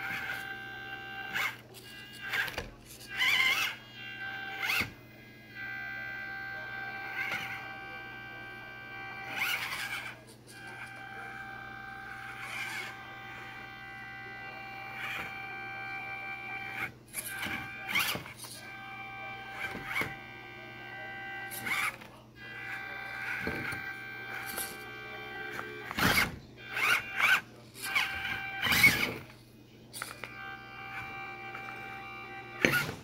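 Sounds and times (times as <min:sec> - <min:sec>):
scraping and knocking of toy truck: 0:00.0 - 0:03.8, 0:16.5 - 0:18.7, 0:23.0 - 0:29.4
electric motor whining: 0:00.0 - 0:33.0.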